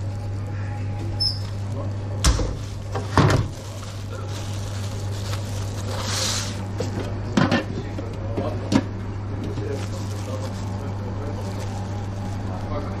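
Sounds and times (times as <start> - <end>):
steady low hum: 0.0 - 13.0
gloved hands handling bread roll: 1.2 - 7.0, 9.4 - 13.0.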